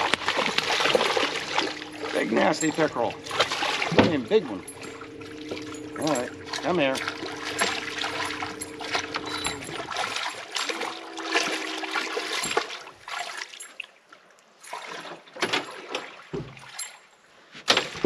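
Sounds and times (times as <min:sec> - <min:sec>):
steady low hum: 0:00.0 - 0:12.6
fish thrashing and splashing: 0:00.0 - 0:13.7
water dripping: 0:00.0 - 0:13.8.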